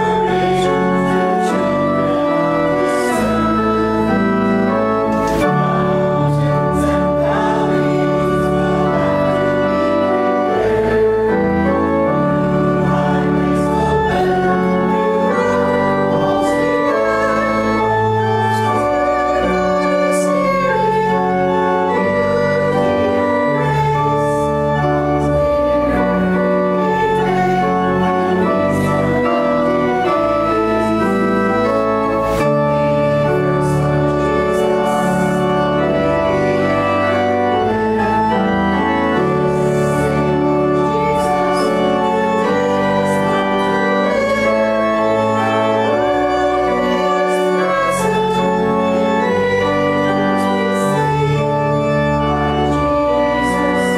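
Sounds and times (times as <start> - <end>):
voices singing: 0.0 - 31.8
church organ playing hymn: 0.0 - 53.9.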